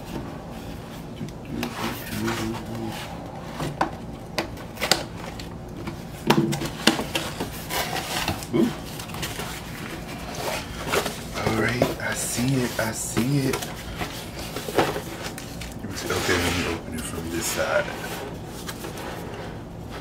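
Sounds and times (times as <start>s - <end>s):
cardboard scraping and rubbing: 1.6s - 3.8s, 6.6s - 20.0s.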